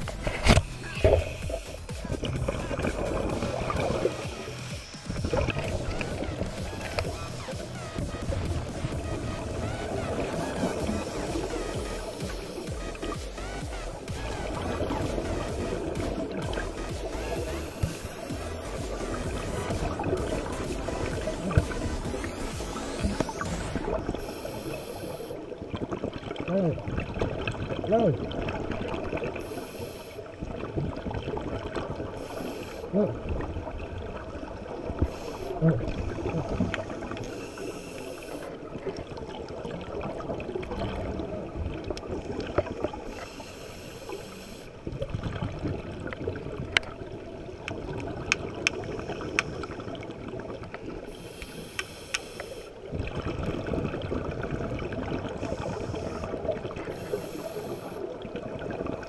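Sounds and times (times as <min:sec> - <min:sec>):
exhaled bubbles hissing: 0:00.0 - 0:59.0
underwater water rumble: 0:00.0 - 0:59.0
regulator breathing: 0:15.6 - 0:25.4, 0:29.4 - 0:30.3, 0:35.0 - 0:38.6, 0:42.9 - 0:44.8, 0:51.1 - 0:52.8, 0:55.4 - 0:58.1.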